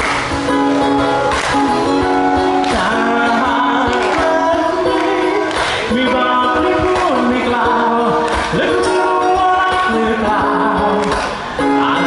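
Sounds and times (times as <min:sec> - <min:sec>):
ukulele strumming: 0:00.0 - 0:12.0
man singing into a microphone: 0:02.4 - 0:12.0.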